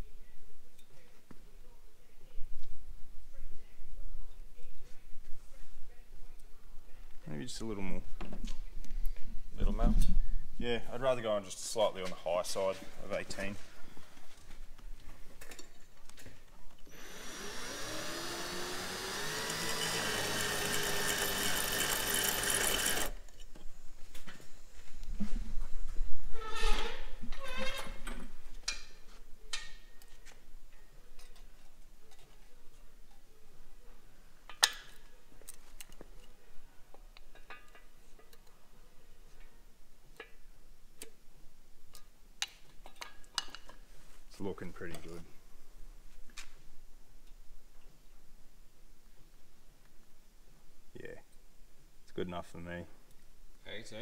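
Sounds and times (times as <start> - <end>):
cordless drill grinding: 16.9 - 23.2.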